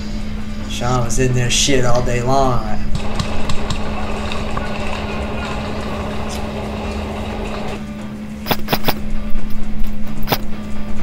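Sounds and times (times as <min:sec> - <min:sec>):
steady rushing noise: 0:02.9 - 0:09.0
sharp snaps: 0:08.4 - 0:09.0, 0:10.2 - 0:10.5.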